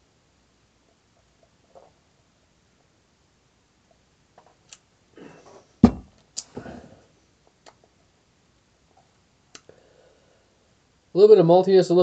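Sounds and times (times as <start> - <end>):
glass mug set down on table: 5.8 - 6.1.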